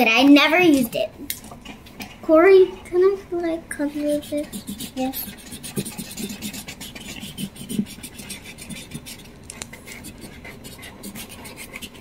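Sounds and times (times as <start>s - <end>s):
markers scratching on paper: 3.9s - 12.0s.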